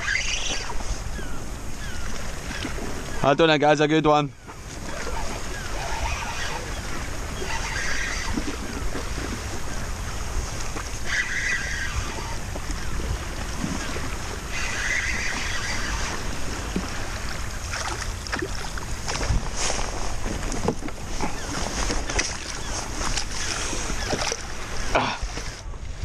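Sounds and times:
waves lapping against plastic hull: 0.0 - 26.0
wind rumbling on microphone: 0.0 - 26.0.

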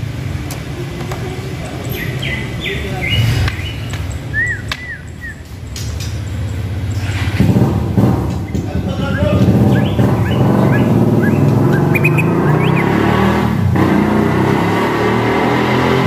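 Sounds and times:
bird whistling: 1.9 - 5.7, 8.9 - 13.3
steady low rumble: 3.2 - 12.8.

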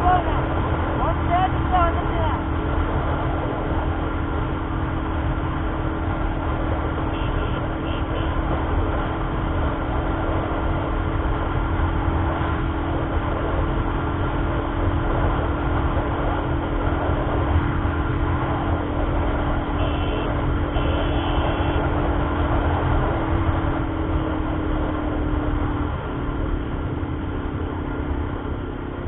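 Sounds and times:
motorcycle engine at high speed: 0.0 - 29.0
wind rumble on microphone: 0.0 - 29.0.

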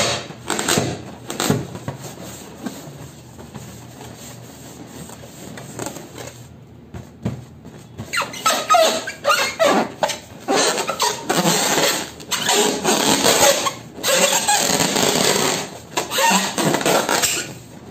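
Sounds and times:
rubber balloon squeaking: 0.0 - 1.8, 7.8 - 17.7.

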